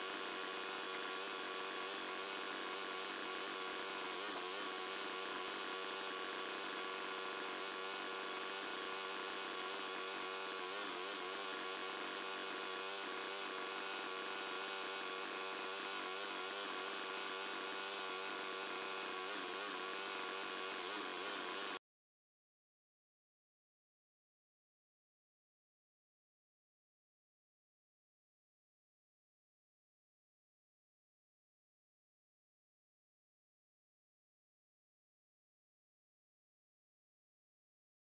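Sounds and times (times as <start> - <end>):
log splitter motor humming: 0.0 - 21.8.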